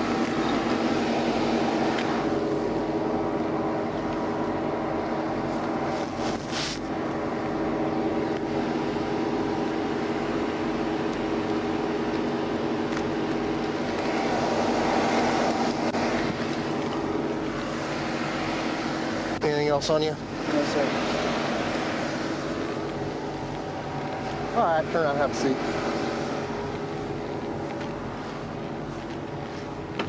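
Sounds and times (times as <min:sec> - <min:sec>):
rushing noise: 0:00.0 - 0:29.0
car engine idling: 0:00.0 - 0:30.0
brief rustle: 0:05.5 - 0:06.9.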